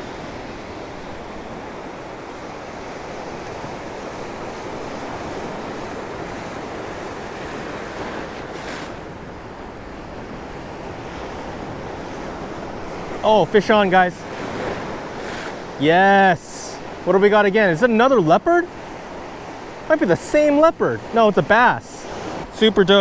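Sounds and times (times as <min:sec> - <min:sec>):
ocean surf breaking: 0:00.0 - 0:23.0.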